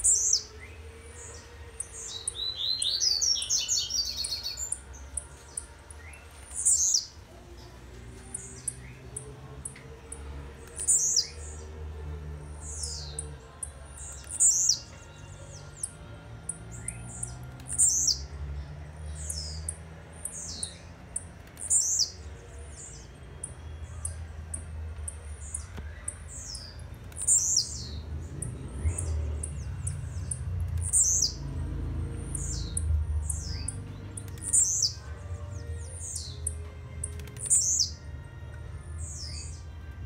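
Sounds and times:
bird singing high falling notes: 0:00.0 - 0:07.7.

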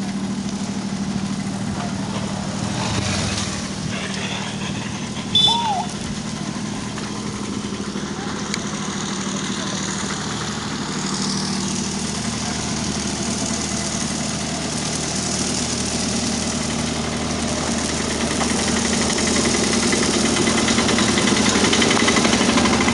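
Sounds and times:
diesel generator running: 0:00.0 - 0:22.9.

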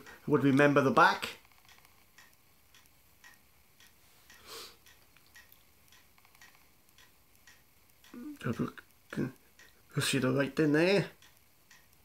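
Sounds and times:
faint regular ticking: 0:00.0 - 0:12.0
short breath: 0:04.3 - 0:04.8.

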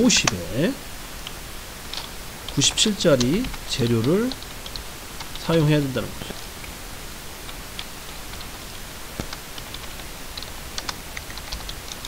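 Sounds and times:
steady hiss: 0:00.0 - 0:12.0
keyboard typing: 0:01.9 - 0:05.8, 0:09.2 - 0:12.0.

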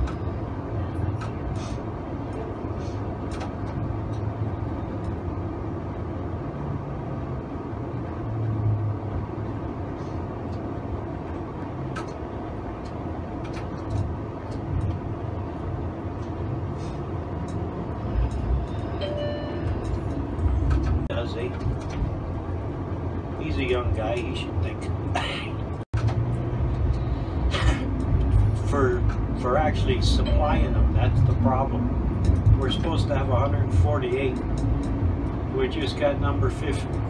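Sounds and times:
streetcar rumbling on track: 0:00.0 - 0:37.0
short high tone: 0:19.0 - 0:19.8, 0:30.2 - 0:31.0.

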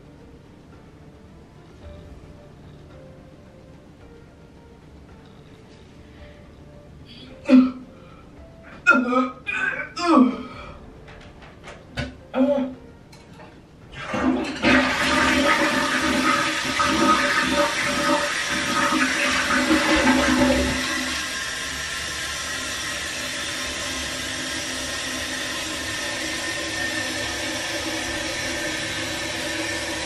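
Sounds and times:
toilet flushing: 0:13.9 - 0:30.0
tank refilling hiss: 0:14.7 - 0:30.0.

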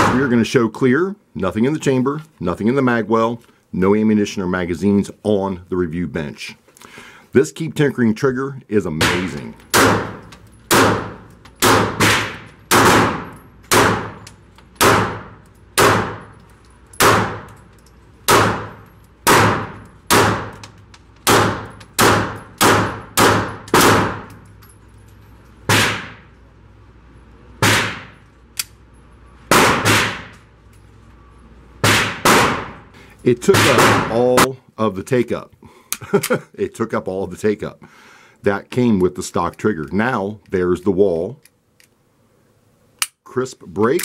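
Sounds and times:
pistol shots echoing indoors: 0:00.0 - 0:00.3, 0:09.0 - 0:24.5, 0:25.6 - 0:26.4, 0:27.6 - 0:28.8, 0:29.5 - 0:30.5, 0:31.8 - 0:32.8, 0:33.5 - 0:34.2.

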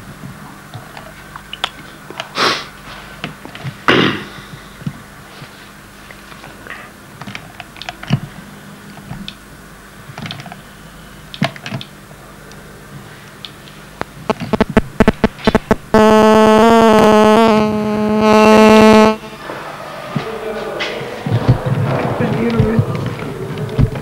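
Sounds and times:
low steady hum: 0:00.0 - 0:24.0
short noisy bursts: 0:14.1 - 0:19.6.

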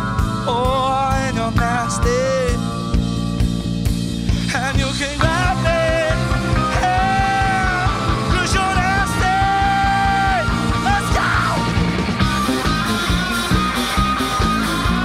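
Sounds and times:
man singing lead vocal: 0:00.0 - 0:03.0, 0:04.3 - 0:11.9
drums with steady beat: 0:00.0 - 0:15.0
electric bass: 0:00.0 - 0:15.0
electric guitar: 0:00.0 - 0:15.0.

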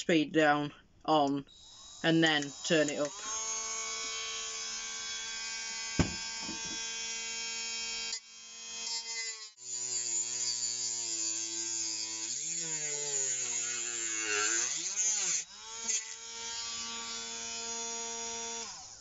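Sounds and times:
rotary tool cutting disc whine: 0:01.5 - 0:06.9.

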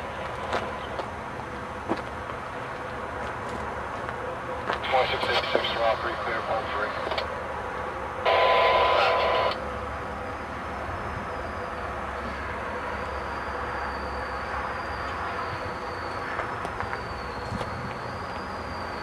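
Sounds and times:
electric train rumbling: 0:00.0 - 0:19.0
radio static with tone: 0:04.8 - 0:07.2, 0:08.2 - 0:09.6.

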